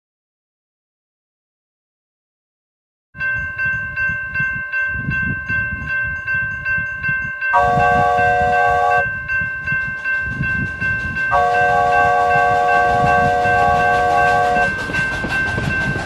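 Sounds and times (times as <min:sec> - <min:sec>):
railroad crossing bell ringing: 0:03.2 - 0:16.0
train horn chord: 0:07.5 - 0:09.1, 0:11.3 - 0:14.8.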